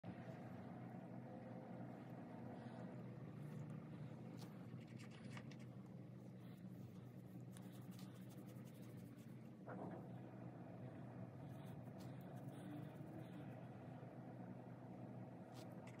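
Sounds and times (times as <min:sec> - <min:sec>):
steady low hum: 0:00.0 - 0:16.0
paintbrush scratching on fabric: 0:06.3 - 0:09.4.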